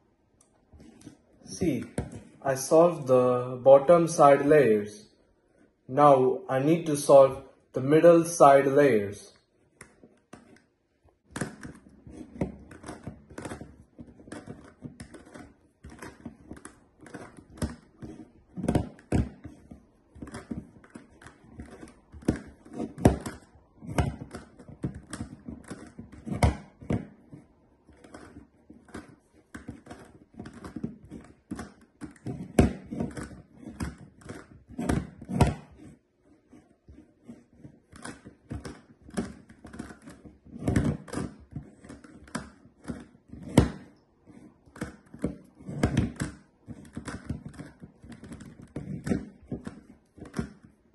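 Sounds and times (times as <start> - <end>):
plastic puzzle pieces clicking: 11.3 - 50.7.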